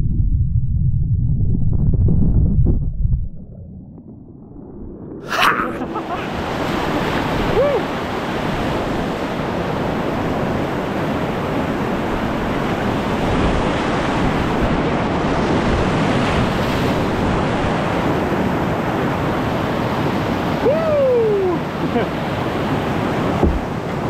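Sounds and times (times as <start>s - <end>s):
whitewater rapids rushing: 5.3s - 10.3s.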